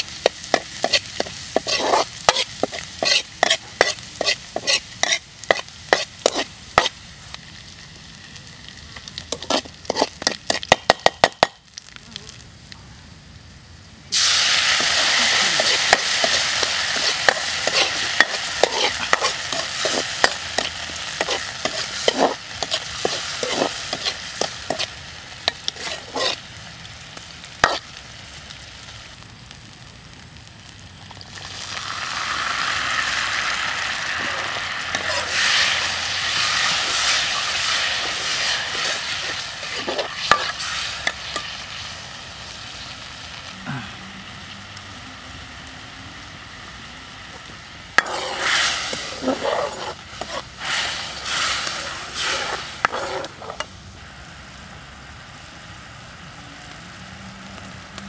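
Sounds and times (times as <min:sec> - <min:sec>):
metal ladle scraping wok: 0:00.0 - 0:06.9, 0:09.3 - 0:11.0, 0:14.2 - 0:26.4, 0:27.6 - 0:27.9, 0:34.1 - 0:41.6, 0:48.0 - 0:53.7
oil and garlic sizzling in wok: 0:00.0 - 0:58.0.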